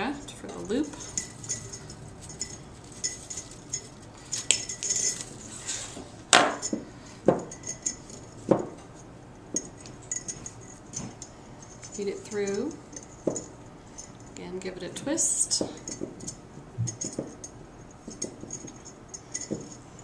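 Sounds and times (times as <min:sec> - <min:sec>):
wire jingling and clinking: 0:00.0 - 0:14.4, 0:15.4 - 0:20.0.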